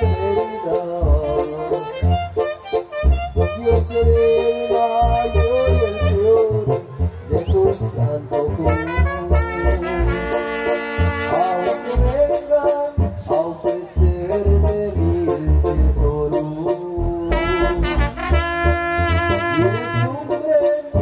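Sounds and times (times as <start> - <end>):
saxophone: 0.0 - 8.0, 8.6 - 13.3, 17.2 - 20.4
trumpet: 0.0 - 13.8, 14.4 - 21.0
drum kit beat: 0.0 - 21.0.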